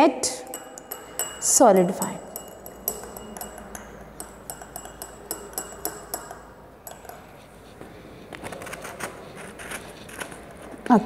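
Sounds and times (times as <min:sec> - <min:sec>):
stirrer clinking against a glass beaker: 0:00.3 - 0:07.8.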